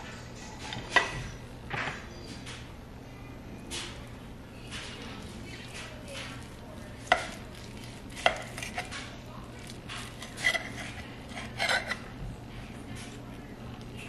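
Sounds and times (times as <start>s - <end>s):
knife sawing through crust: 10.2s - 12.0s.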